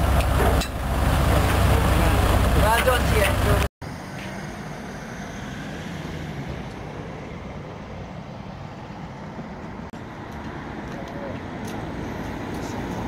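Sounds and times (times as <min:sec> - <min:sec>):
low engine rumble: 0:00.0 - 0:03.7
road traffic noise: 0:00.0 - 0:13.0.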